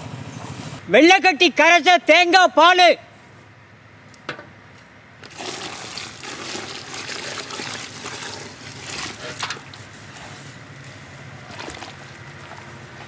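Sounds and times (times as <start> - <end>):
small knock: 4.3 - 4.5
liquid pouring: 5.2 - 9.7, 11.4 - 13.0.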